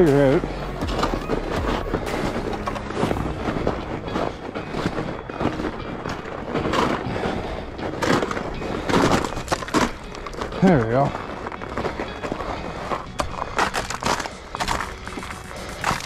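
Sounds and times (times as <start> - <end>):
bike tyres crunching through snow: 0.0 - 16.0.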